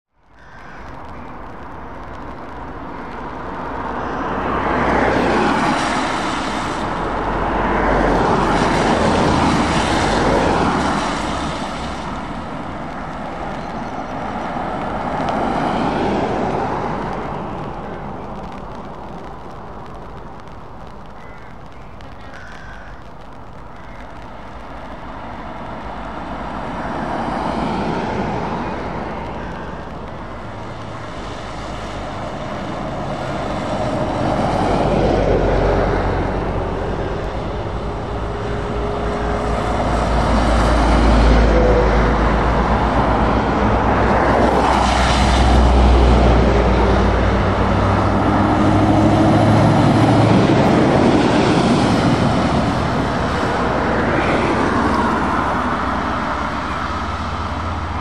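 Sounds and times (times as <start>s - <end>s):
traffic passing on wet road: 0.1s - 58.0s.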